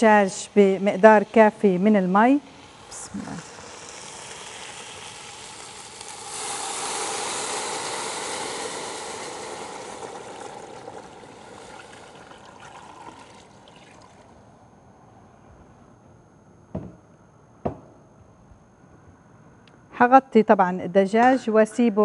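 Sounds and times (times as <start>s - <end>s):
water pouring into a pot: 2.4s - 14.3s.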